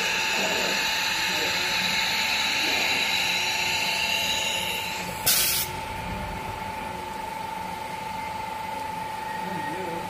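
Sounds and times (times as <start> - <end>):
compressed air blast: 0.0 - 5.8
machine high whine: 0.0 - 10.0.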